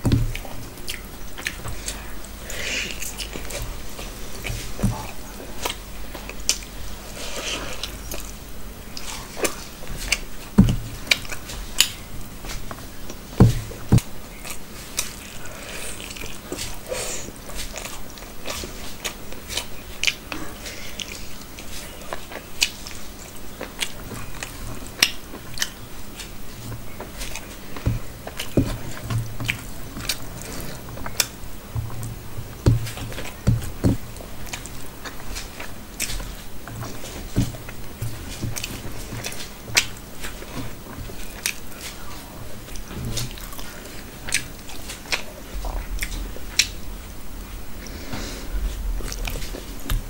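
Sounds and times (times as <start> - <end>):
chewing with mouth clicks: 0.3 - 46.9
soft low thuds: 31.5 - 34.3, 45.5 - 47.8, 48.4 - 50.0.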